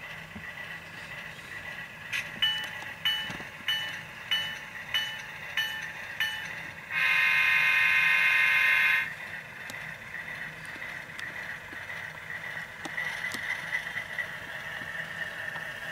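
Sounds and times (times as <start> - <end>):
model locomotive bell: 2.1 - 9.1
model locomotive horn blast: 6.9 - 9.1.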